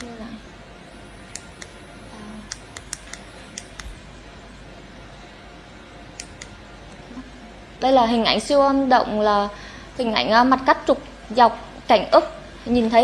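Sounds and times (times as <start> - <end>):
steady background hiss: 0.0 - 13.0
computer mouse clicks: 2.5 - 3.9, 6.2 - 6.6.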